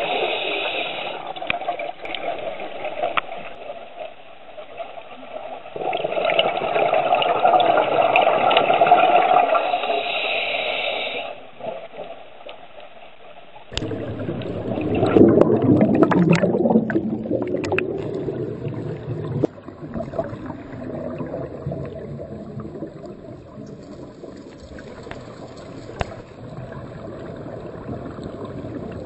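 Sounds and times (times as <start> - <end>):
underwater air bubbling: 13.7 - 29.0.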